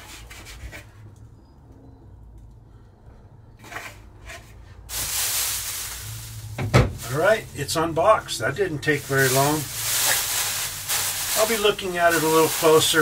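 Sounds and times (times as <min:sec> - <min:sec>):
plastic wrap crinkling: 0:04.9 - 0:13.0.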